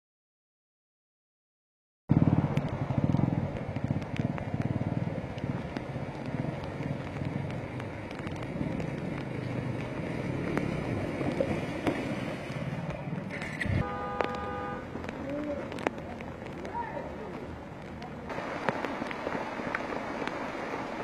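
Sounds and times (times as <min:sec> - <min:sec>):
motorcycle engine running: 0:02.1 - 0:11.6
water spraying off wheels: 0:02.2 - 0:21.0.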